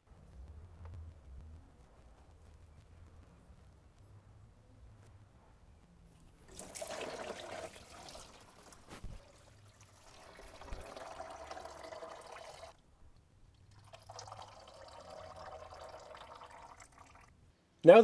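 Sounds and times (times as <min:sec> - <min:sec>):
coolant splashing into pan: 0:06.4 - 0:12.8, 0:13.6 - 0:17.3.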